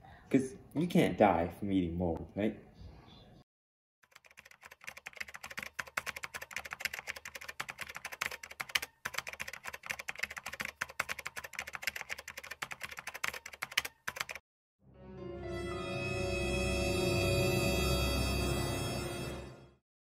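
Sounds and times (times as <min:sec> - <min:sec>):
rapid keyboard typing: 0:04.0 - 0:14.4.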